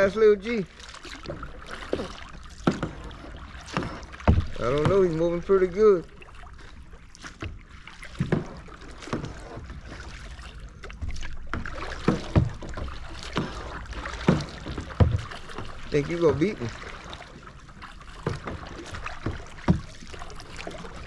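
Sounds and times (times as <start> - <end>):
paddle splashing in water: 0.0 - 21.0
sharp paddle knocks: 2.6 - 3.1.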